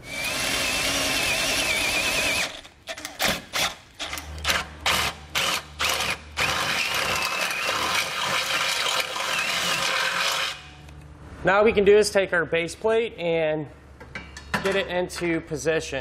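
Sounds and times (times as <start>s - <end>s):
electric drill whining: 0.0s - 2.7s, 4.9s - 10.6s.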